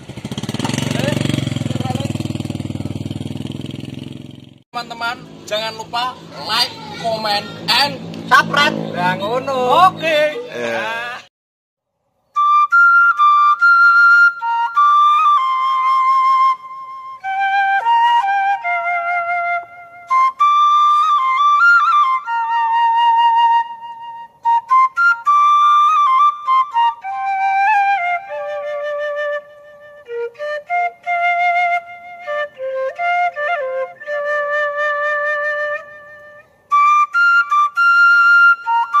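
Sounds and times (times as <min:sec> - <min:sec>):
solo flute melody: 0:12.2 - 0:39.0.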